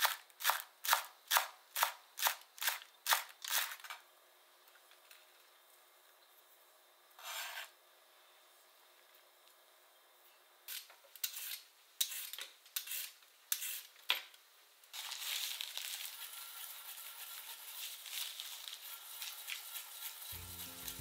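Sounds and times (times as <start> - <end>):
yam grating in ceramic bowl: 16.0 - 21.0.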